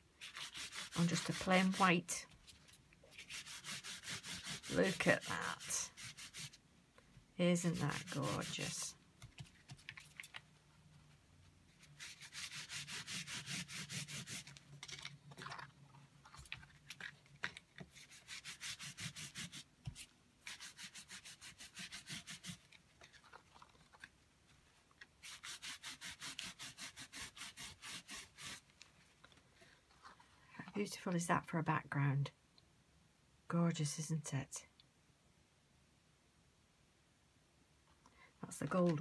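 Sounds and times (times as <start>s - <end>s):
tissue rubbing on card: 0.2s - 6.6s, 7.6s - 10.2s, 11.0s - 15.6s, 17.9s - 24.1s, 25.2s - 30.3s.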